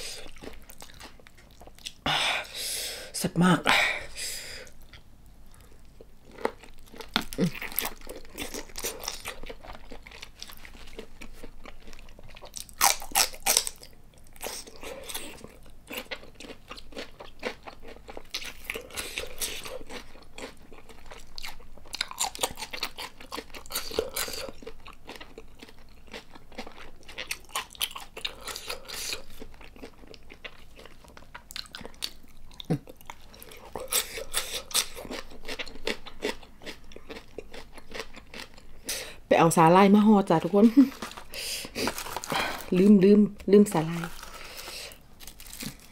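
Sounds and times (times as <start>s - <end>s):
chewing raw prawn: 0.0s - 2.0s, 5.6s - 38.9s.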